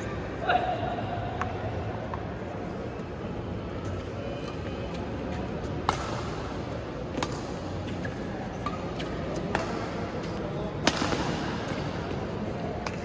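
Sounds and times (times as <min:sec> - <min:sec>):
low background noise: 0:00.0 - 0:13.0
rackets striking shuttlecock: 0:05.7 - 0:13.0.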